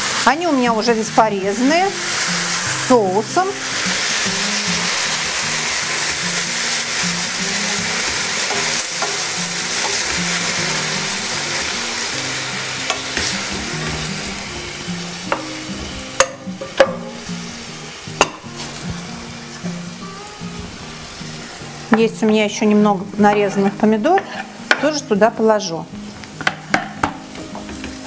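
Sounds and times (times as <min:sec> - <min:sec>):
vegetables sizzling in a frying pan: 0:00.0 - 0:28.0
spatula knocking against pan: 0:16.2 - 0:17.2.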